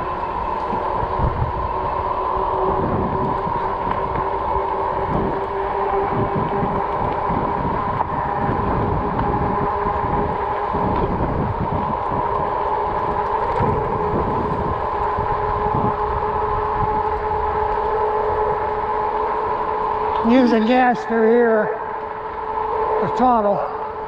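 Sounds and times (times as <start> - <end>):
electric bike high whine: 0.0 - 24.0
wind gusting on microphone: 0.0 - 24.0.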